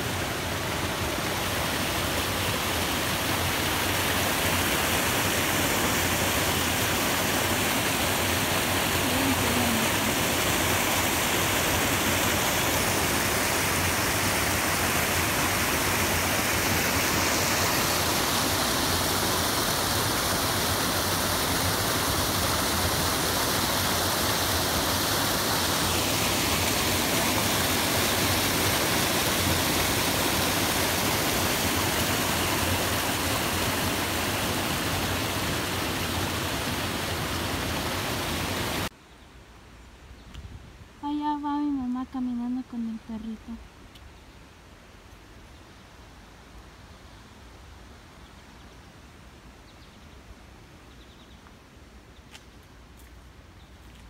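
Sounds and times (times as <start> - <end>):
creek running over rocks: 0.0 - 38.9.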